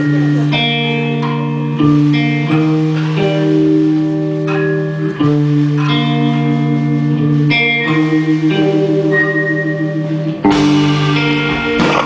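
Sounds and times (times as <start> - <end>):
guitar picking ringing notes: 0.0 - 12.0
live band music: 0.0 - 12.0.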